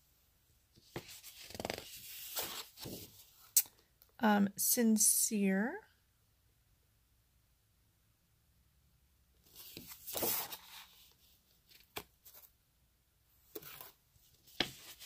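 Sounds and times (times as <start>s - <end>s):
paper rustling: 0.8s - 3.4s, 9.5s - 12.5s, 13.5s - 15.0s.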